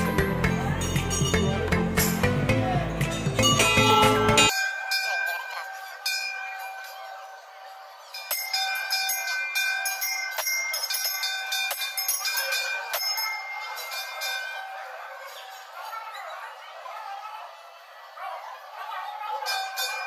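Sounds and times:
brass bell ringing: 0.0 - 7.1, 8.1 - 14.9.

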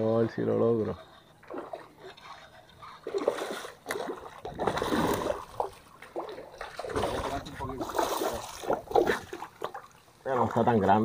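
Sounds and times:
fish splashing at the surface: 3.0 - 10.0.

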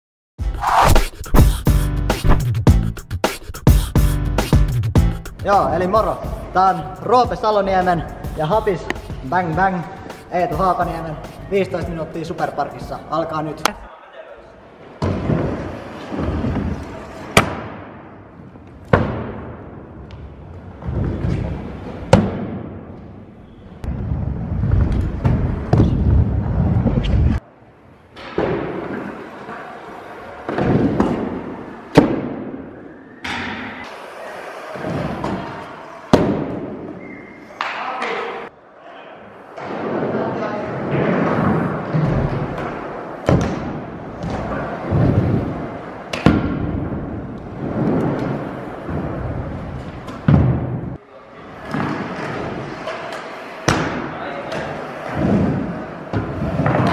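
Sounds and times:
scooter wheels rolling on ramps: 23.8 - 27.4, 40.8 - 50.7.

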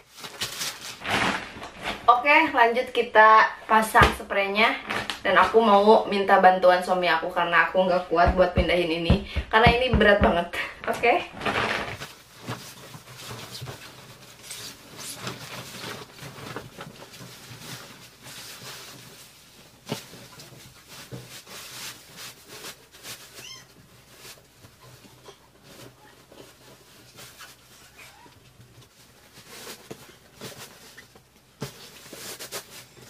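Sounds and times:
bed sheet rustling and flapping: 11.4 - 23.0.

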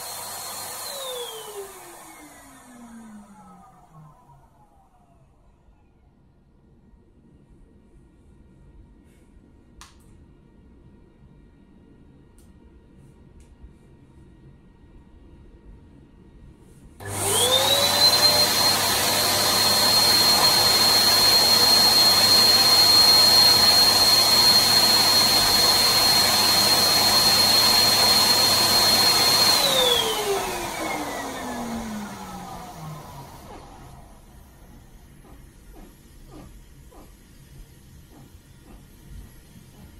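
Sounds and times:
electric balloon pump whining: 17.0 - 37.1.

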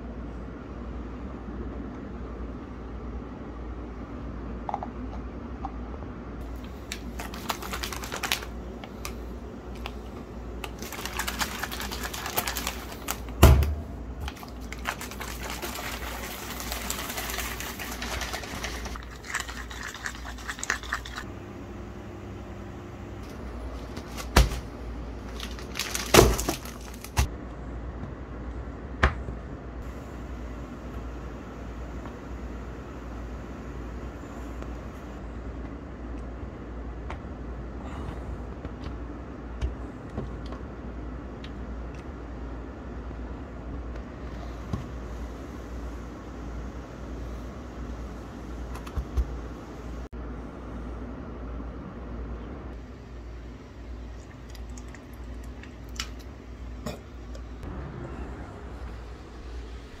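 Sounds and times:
steady low hum: 0.0 - 60.0
bottle being shaken: 14.8 - 21.2.

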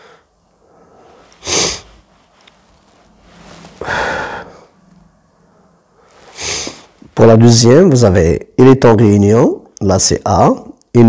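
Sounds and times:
man breathing: 0.0 - 7.1.

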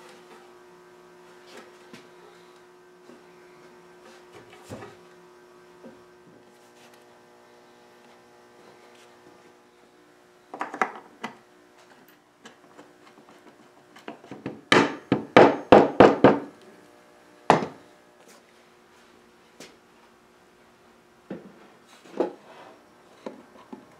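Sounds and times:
faint mains hum: 0.0 - 23.9
wood and hardware knocking: 14.0 - 16.5.

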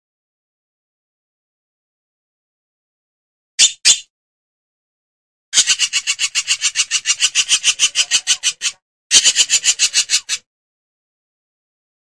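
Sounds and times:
hornbill rasping calls: 5.6 - 10.5.

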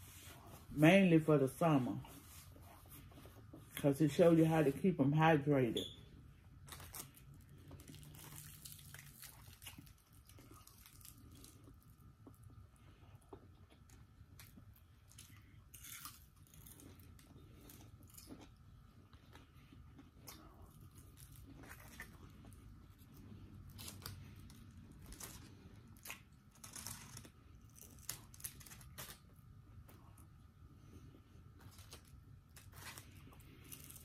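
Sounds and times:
chewing crunchy fried food: 6.5 - 34.0.

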